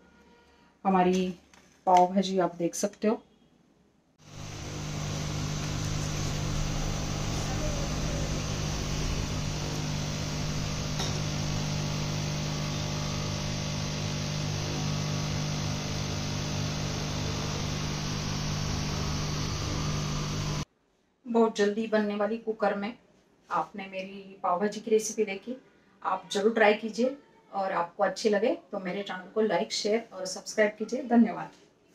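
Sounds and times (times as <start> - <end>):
mechanical hum: 4.2 - 20.6.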